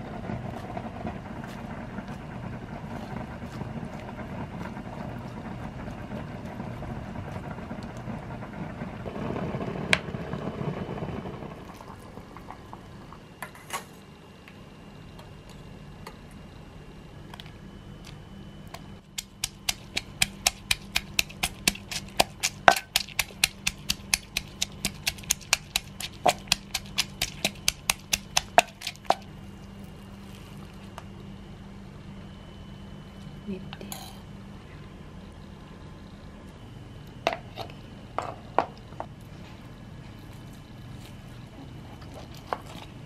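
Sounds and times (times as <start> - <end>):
pestle pounding in clay mortar: 19.1 - 29.3.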